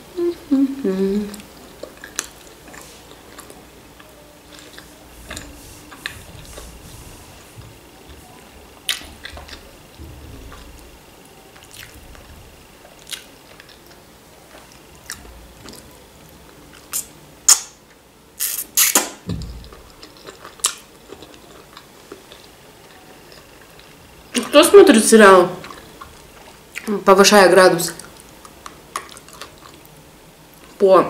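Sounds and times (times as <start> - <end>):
chewing and mouth smacks: 1.3 - 6.2, 19.7 - 24.0, 28.0 - 29.9.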